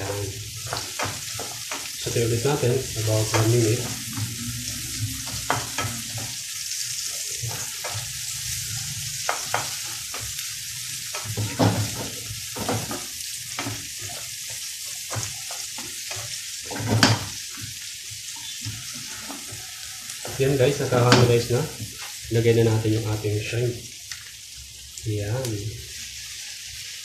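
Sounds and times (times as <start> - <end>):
spatula scraping and knocking pan: 0.0 - 22.2
onion sizzling in a frying pan: 0.0 - 27.0.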